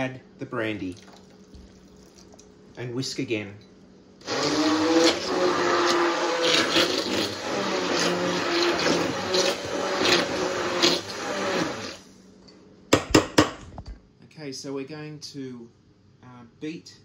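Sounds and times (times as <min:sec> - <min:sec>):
electric stick blender whisking: 0:04.2 - 0:12.0.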